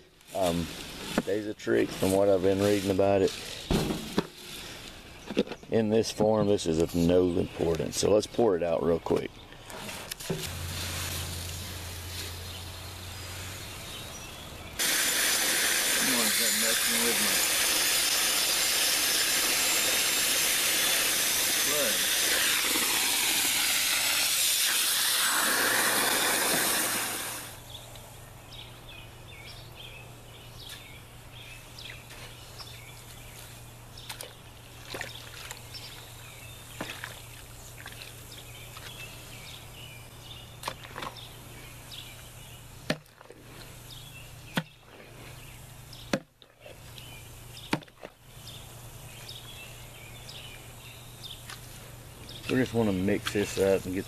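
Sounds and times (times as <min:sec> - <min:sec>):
hose spraying into wheelbarrow: 0:00.2 - 0:05.0, 0:09.8 - 0:13.7, 0:14.8 - 0:27.6
sharp knocks: 0:03.7 - 0:04.4.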